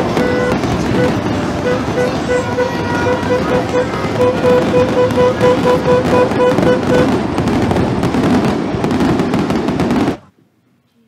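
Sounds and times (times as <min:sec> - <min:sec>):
fireworks crackling: 0:00.0 - 0:10.3
repeated beeping tone: 0:00.1 - 0:07.1.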